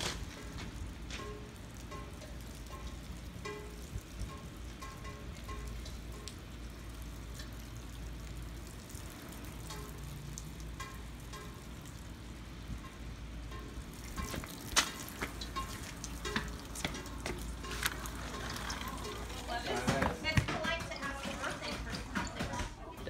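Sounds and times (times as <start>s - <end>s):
steady rain falling: 0.0s - 22.4s.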